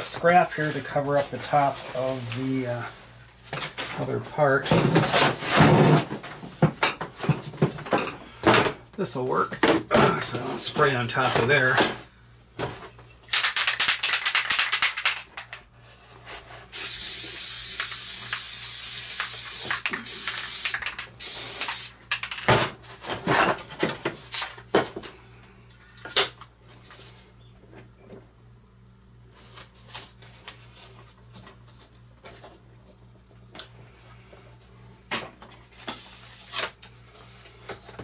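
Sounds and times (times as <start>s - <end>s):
aerosol spray hissing: 16.7s - 22.0s.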